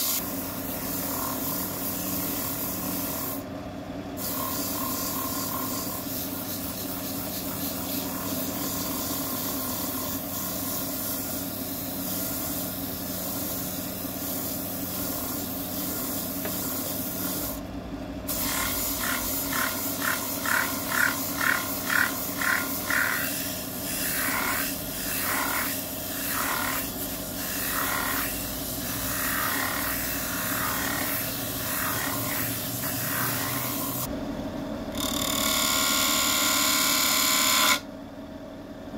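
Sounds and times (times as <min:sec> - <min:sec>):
wood lathe running: 0:18.5 - 0:23.2, 0:25.3 - 0:26.8, 0:27.4 - 0:28.4, 0:29.0 - 0:34.1.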